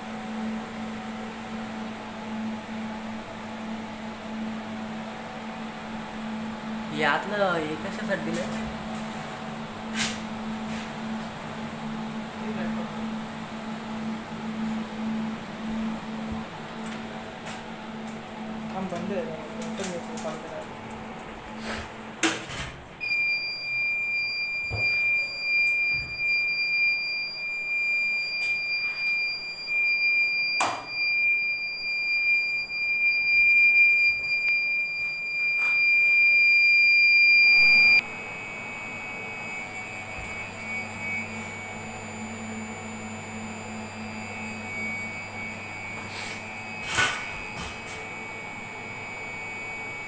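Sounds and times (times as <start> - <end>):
fan noise: 0.0 - 23.6
electrical hum: 0.0 - 50.0
alarm buzzer tone: 23.0 - 50.0.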